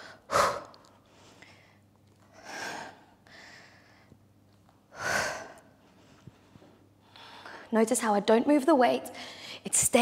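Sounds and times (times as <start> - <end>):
woman breathing hard: 0.0 - 4.3, 4.9 - 7.7, 9.1 - 9.7.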